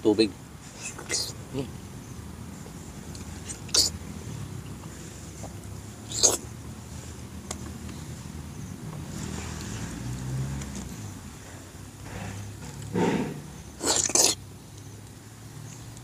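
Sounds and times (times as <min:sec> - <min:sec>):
mouth sucking in air: 0:03.4 - 0:04.0, 0:06.0 - 0:06.5, 0:12.1 - 0:14.4
mango squishing in hands: 0:05.8 - 0:06.5.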